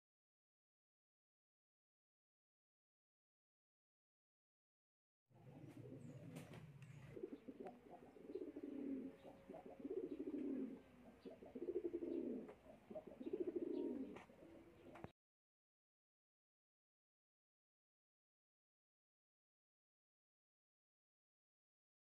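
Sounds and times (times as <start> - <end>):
dove cooing: 5.4 - 15.1.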